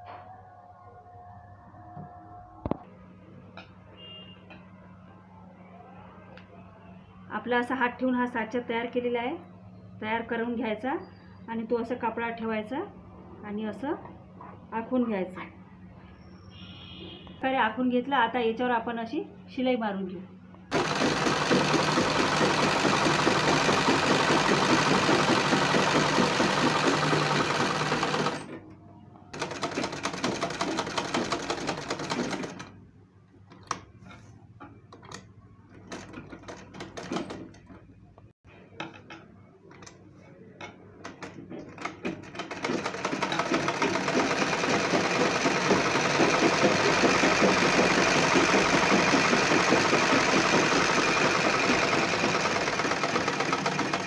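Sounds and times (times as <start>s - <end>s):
sewing machine stitching: 20.7s - 28.6s, 29.4s - 32.7s, 35.8s - 37.8s, 41.1s - 54.0s.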